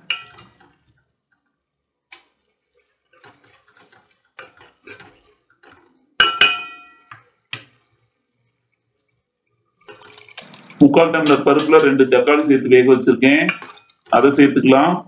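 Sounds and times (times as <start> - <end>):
ladle clanking against metal pot: 0.0 - 0.7, 3.1 - 7.2, 9.8 - 12.0, 13.5 - 14.2
ladle stirring vegetables in pot: 0.0 - 1.4, 2.1 - 12.0, 13.4 - 14.6.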